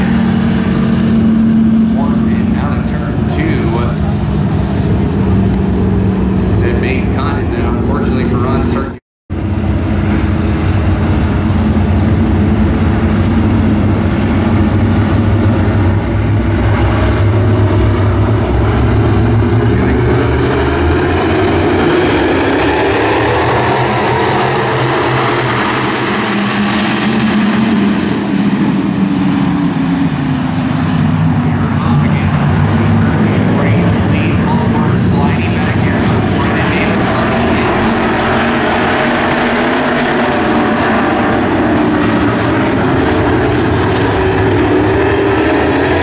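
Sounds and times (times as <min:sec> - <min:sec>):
race car engines droning: 0:00.0 - 0:46.0.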